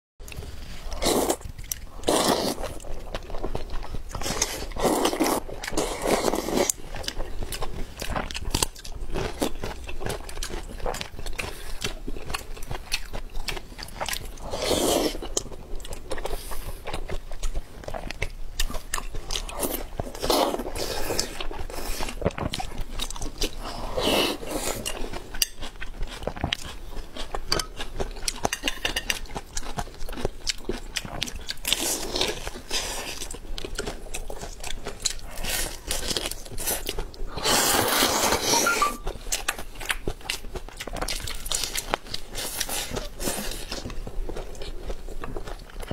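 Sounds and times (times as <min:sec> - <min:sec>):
chewing and biting: 0:00.3 - 0:45.9
noodle slurping: 0:37.3 - 0:39.0.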